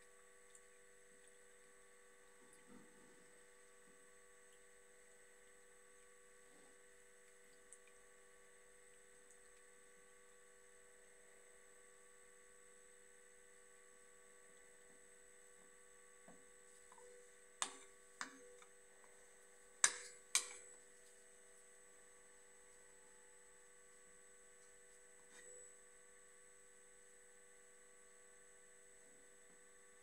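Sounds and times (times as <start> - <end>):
steady electrical hum: 0.0 - 30.0
stick tapping a container: 16.9 - 18.7, 19.8 - 20.6.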